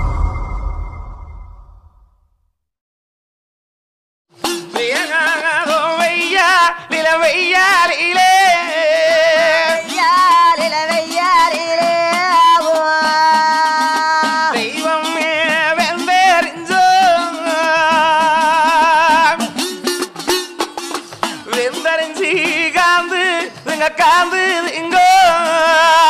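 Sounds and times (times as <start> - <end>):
steady drone: 0.0 - 2.0
folk singing: 4.8 - 19.8, 21.2 - 26.0.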